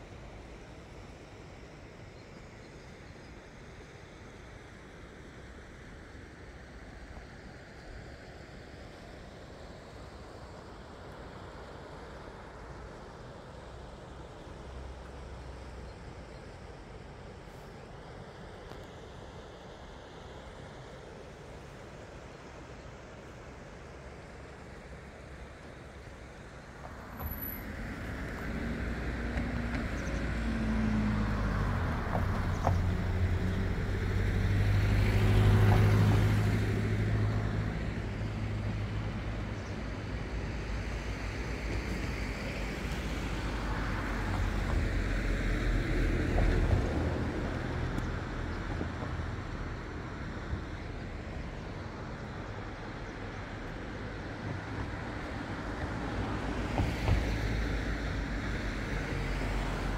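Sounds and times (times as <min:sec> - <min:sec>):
vehicles passing: 0:26.8 - 0:59.9.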